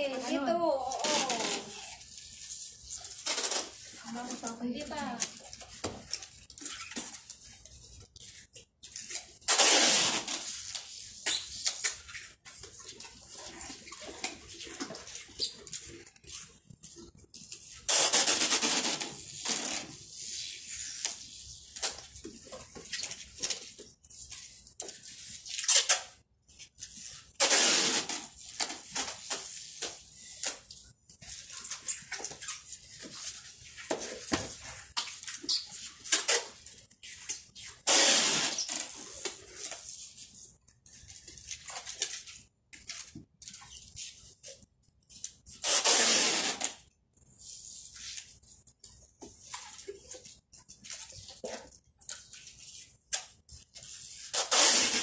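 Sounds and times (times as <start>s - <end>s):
packing tape pulled off roll: 0.2s - 26.2s, 26.8s - 40.2s, 40.9s - 48.6s, 51.0s - 55.0s
packing tape pull: 0.9s - 2.0s, 3.2s - 3.8s, 9.5s - 11.9s, 27.4s - 30.6s, 45.6s - 46.8s, 54.3s - 55.0s.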